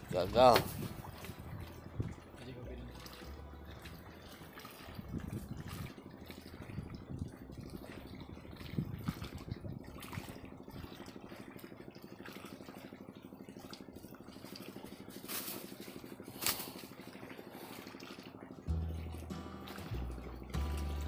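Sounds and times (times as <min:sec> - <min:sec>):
music: 0:00.0 - 0:07.4, 0:18.6 - 0:21.0
small engine pulsing hum: 0:00.0 - 0:21.0.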